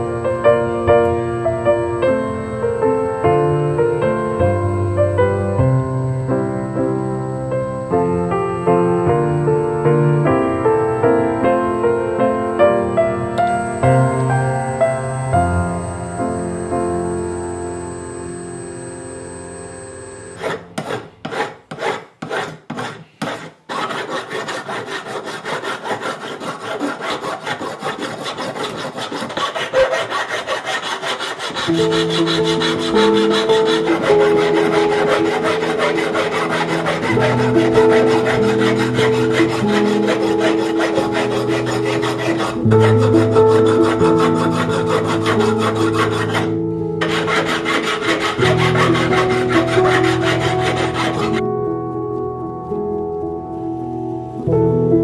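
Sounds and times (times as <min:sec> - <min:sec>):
background music low chords: 0:00.0 - 0:21.0, 0:29.5 - 0:55.0
file rasping on metal: 0:20.3 - 0:51.4.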